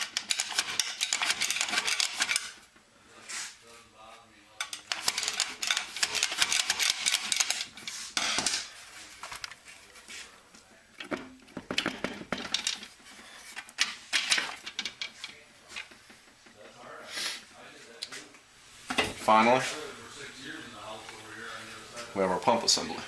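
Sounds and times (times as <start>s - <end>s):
metal gear parts clicking and rattling: 0.0s - 2.6s, 4.6s - 7.7s.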